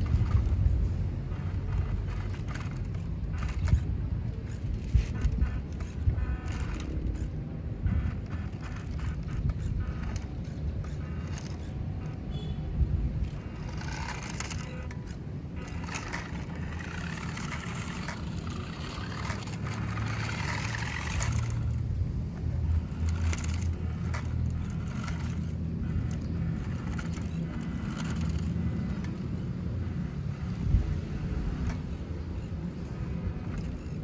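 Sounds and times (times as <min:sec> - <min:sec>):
electric motor and gears whirring: 0:00.0 - 0:34.0
tyres crunching over gravel: 0:13.2 - 0:21.8.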